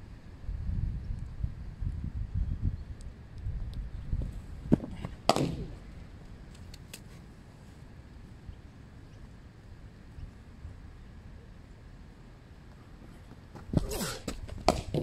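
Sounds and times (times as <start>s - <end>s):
cricket ball knocks: 4.8s - 5.7s.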